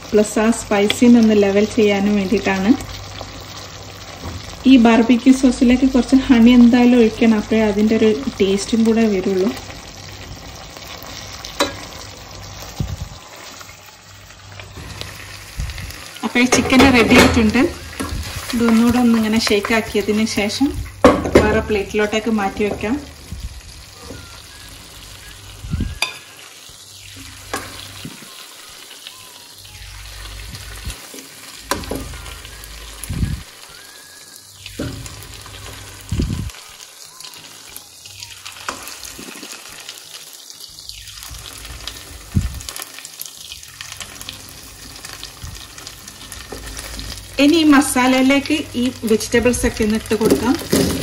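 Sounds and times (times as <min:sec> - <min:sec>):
chicken sizzling in a frying pan: 0:00.0 - 0:51.0.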